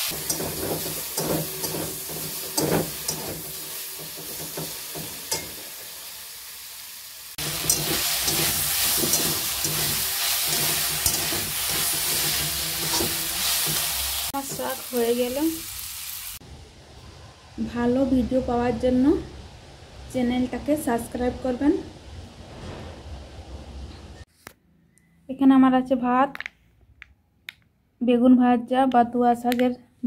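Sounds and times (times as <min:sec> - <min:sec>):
vegetables sizzling in a wok: 0:00.0 - 0:16.8, 0:17.5 - 0:22.5
spatula clicking and scraping: 0:07.5 - 0:14.0.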